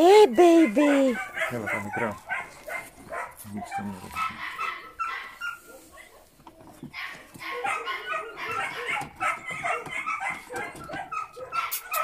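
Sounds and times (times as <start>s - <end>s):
puppies whimpering and yelping: 3.6s - 12.0s.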